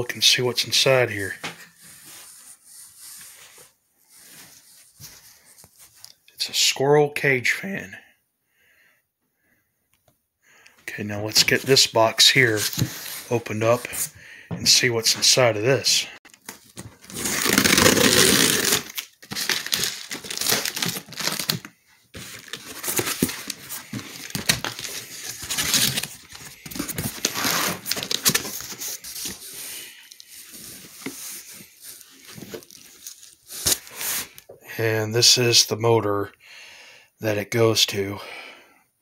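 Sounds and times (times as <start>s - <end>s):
rustling and crinkling packing: 11.4s - 14.1s, 16.3s - 34.4s
tape ripped off cardboard box: 17.0s - 21.6s.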